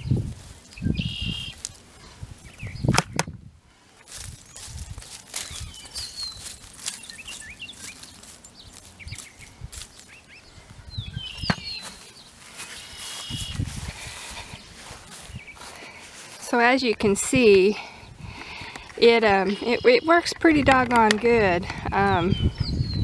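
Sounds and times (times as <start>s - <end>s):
small birds chirping: 0.0s - 3.2s, 4.1s - 23.0s
clicks: 20.2s - 21.4s.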